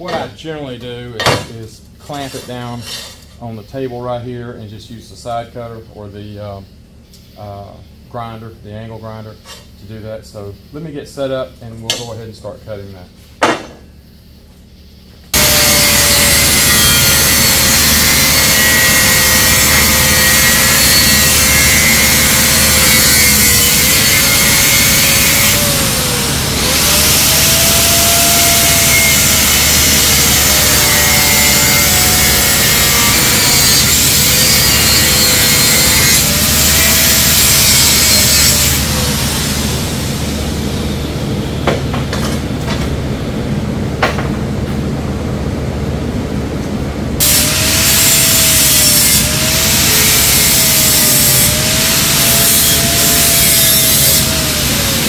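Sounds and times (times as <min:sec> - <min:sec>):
sharp knocks: 0:13.4 - 0:13.8
angle grinder cutting steel: 0:15.4 - 0:40.0, 0:47.2 - 0:55.0.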